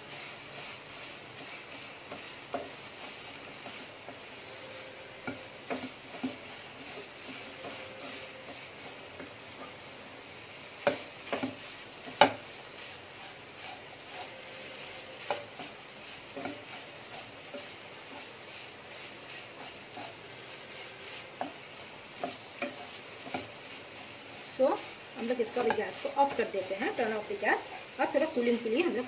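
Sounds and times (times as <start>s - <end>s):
soft sizzle: 0.0s - 29.0s
spatula scraping a pan: 0.0s - 29.0s
spatula knocking against pan: 10.8s - 12.4s.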